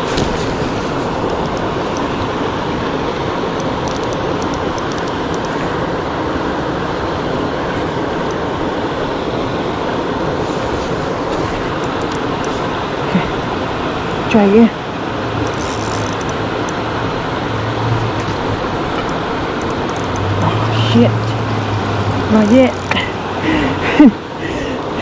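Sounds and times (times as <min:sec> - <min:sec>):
river water rushing: 0:00.0 - 0:25.0
light clicks: 0:03.6 - 0:05.6.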